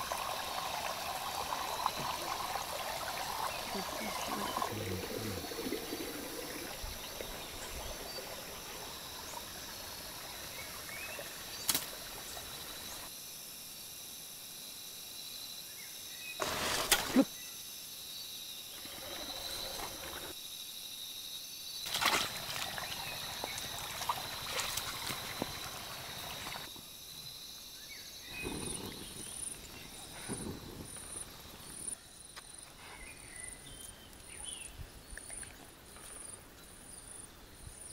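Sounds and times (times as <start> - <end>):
high insect drone: 0.0 - 33.8
bow snapping crack: 11.6 - 12.0.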